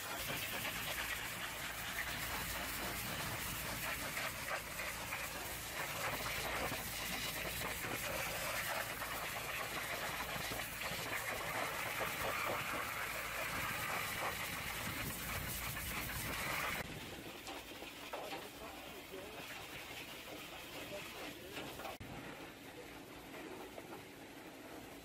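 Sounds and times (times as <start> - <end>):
pressure-washer jet hissing: 0.0 - 16.9
water spattering: 0.0 - 22.0.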